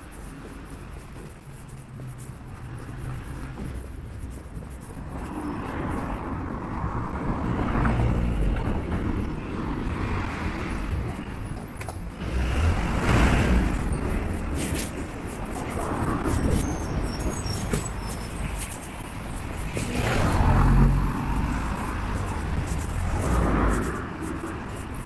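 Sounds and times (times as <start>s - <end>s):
cars passing by: 0.0s - 25.0s.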